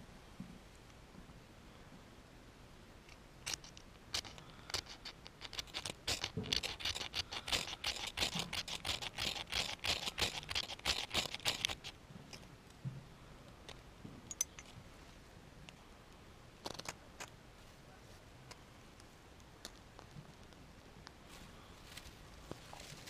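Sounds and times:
fire-starter rod scraping: 3.5 - 12.0.

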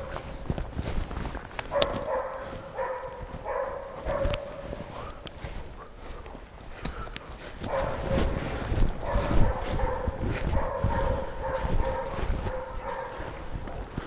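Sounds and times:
dog barking rapidly: 1.7 - 5.1, 7.6 - 8.4, 9.0 - 13.4.

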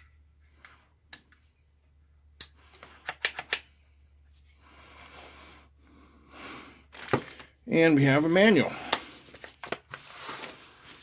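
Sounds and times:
handling rustle: 9.0 - 11.0.

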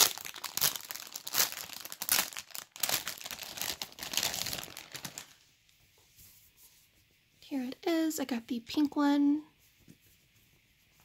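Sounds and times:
plastic bag crinkling: 0.0 - 5.4.

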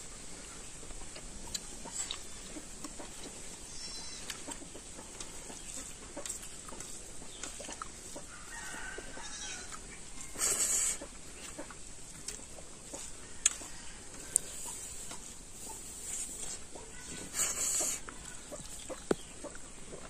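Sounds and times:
chickens clucking: 0.0 - 20.0
burst of hissing: 10.3 - 11.1, 17.2 - 18.0.

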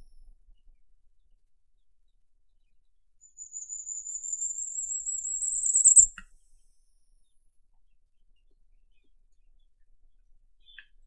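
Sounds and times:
bird singing high thin notes: 3.4 - 6.1.

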